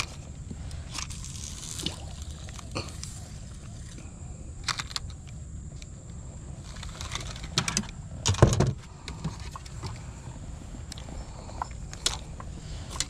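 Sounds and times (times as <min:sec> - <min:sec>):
steady low rumble: 0:00.0 - 0:13.0
fishing reels clicking: 0:00.7 - 0:04.0, 0:04.6 - 0:05.9.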